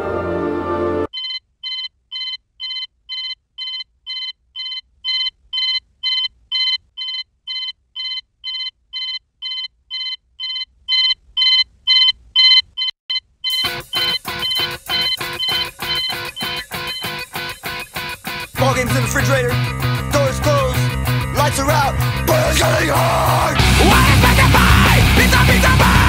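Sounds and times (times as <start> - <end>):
music: 0.0 - 1.1, 13.5 - 26.0
alarm clock beeping: 1.1 - 18.1.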